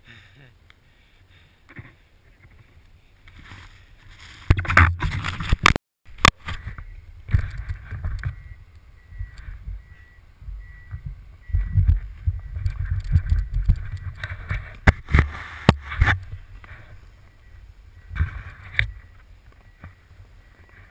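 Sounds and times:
skis swishing through snow: 0:03.4 - 0:04.5
wind buffeting microphone: 0:06.6 - 0:19.2.

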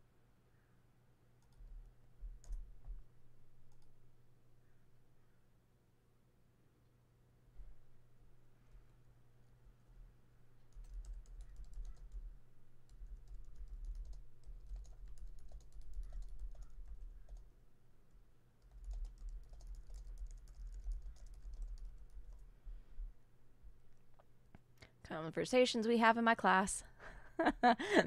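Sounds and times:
low electrical hum: 0:00.0 - 0:28.0
keyboard typing clicks: 0:01.4 - 0:03.0, 0:10.7 - 0:17.5, 0:18.6 - 0:22.4.

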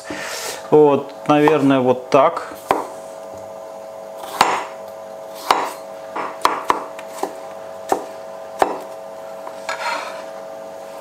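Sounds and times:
knife chopping on cutting board: 0:01.4 - 0:01.7, 0:02.6 - 0:03.0, 0:04.2 - 0:04.8, 0:05.4 - 0:10.3.

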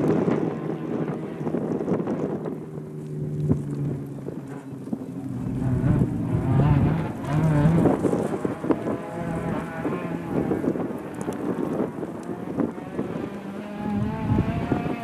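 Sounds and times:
rally car engine revving: 0:00.0 - 0:15.0
wind buffeting microphone: 0:00.0 - 0:15.0.

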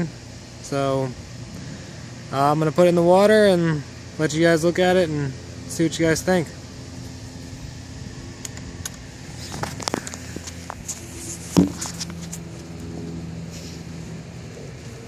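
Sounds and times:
low mechanical hum: 0:00.0 - 0:15.0
camera thump on concrete: 0:11.5 - 0:12.3.

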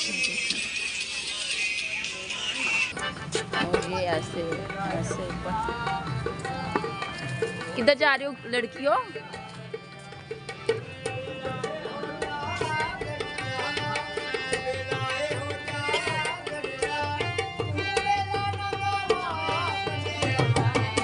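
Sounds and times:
hand drums beating: 0:02.9 - 0:21.0.

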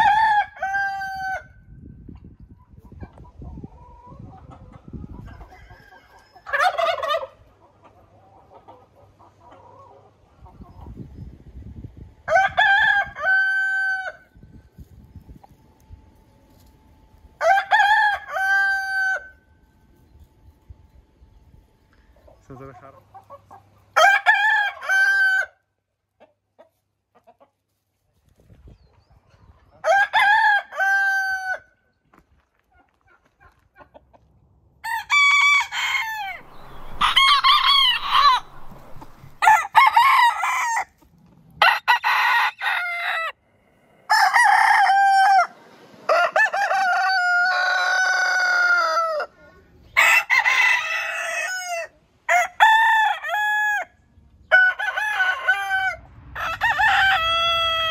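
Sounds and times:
roosters crowing: 0:00.0 - 0:01.6, 0:05.2 - 0:07.4, 0:12.2 - 0:14.3, 0:17.4 - 0:19.4, 0:23.9 - 0:25.6, 0:29.8 - 0:31.7, 0:34.8 - 0:41.0, 0:41.6 - 0:43.4, 0:44.0 - 0:57.9.

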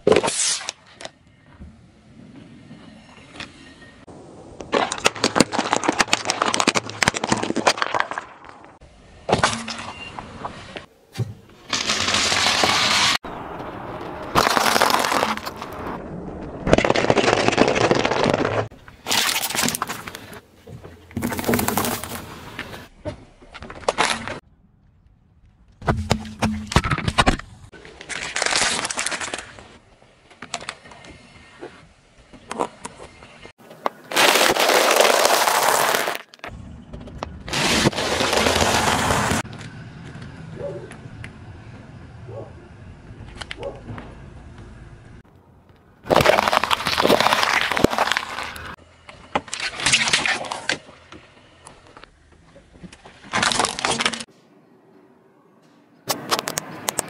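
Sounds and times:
car tyre crushing small objects: 0:04.5 - 0:10.2, 0:11.6 - 0:20.4, 0:21.0 - 0:31.1, 0:32.4 - 0:40.3, 0:45.6 - 0:54.3.

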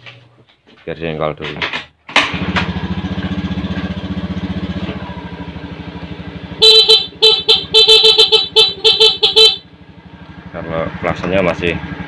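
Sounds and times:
scooter engine idling: 0:02.3 - 0:12.0
electric horn honks: 0:06.6 - 0:09.8.

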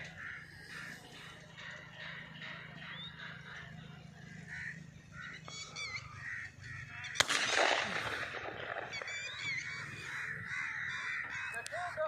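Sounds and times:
small birds chirping: 0:00.0 - 0:07.3, 0:08.2 - 0:12.0
shotgun shot with echo: 0:07.1 - 0:09.7.

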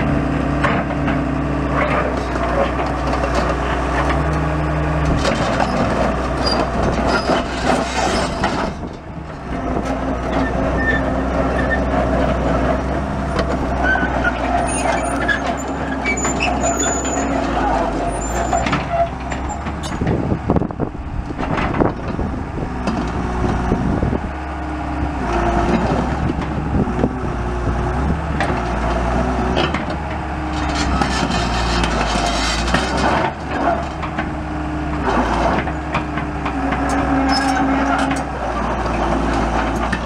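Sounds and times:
excavator diesel engine running: 0:00.0 - 0:40.0.

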